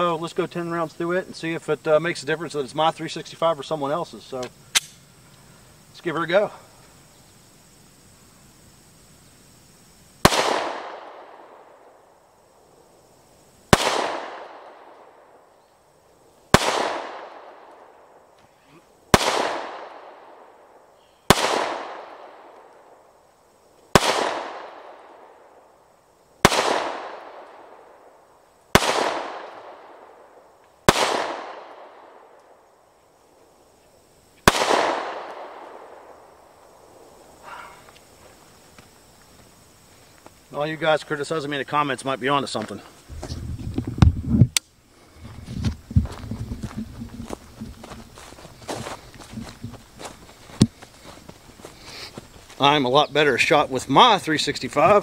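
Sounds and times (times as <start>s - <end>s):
pistol shots with echo: 10.2s - 11.8s, 13.7s - 15.3s, 16.5s - 17.9s, 19.1s - 20.5s, 21.3s - 22.6s, 23.9s - 25.3s, 26.4s - 27.8s, 28.7s - 30.1s, 30.9s - 32.4s, 34.4s - 36.1s.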